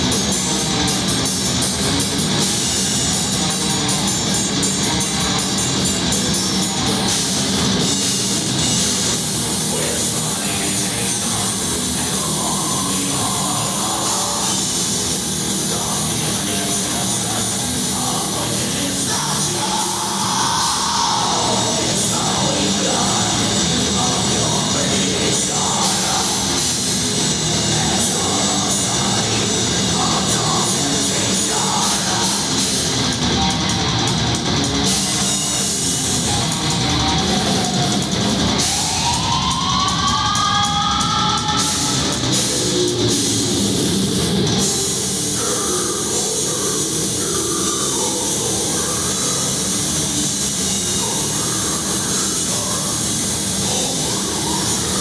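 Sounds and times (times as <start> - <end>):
distorted electric guitars: 0.0 - 55.0
pounding drum kit: 0.0 - 55.0
harsh shouted vocals: 7.0 - 34.1, 34.8 - 55.0.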